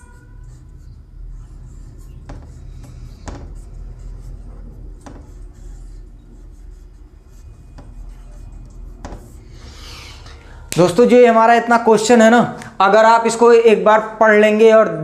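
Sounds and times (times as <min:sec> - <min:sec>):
marker squeaking on whiteboard: 0:00.0 - 0:10.6
steady low hum: 0:00.0 - 0:12.8.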